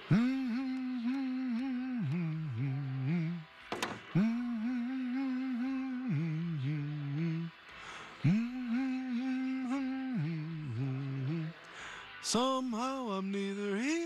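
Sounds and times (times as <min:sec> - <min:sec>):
man humming a tune: 0:00.0 - 0:03.4, 0:04.1 - 0:07.6.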